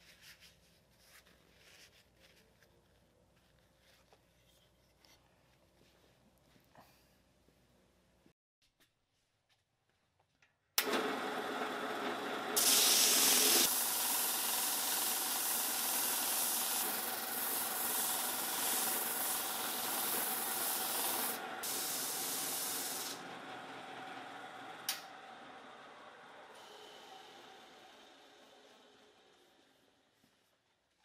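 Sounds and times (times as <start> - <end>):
drum sander on wood: 10.8 - 28.4.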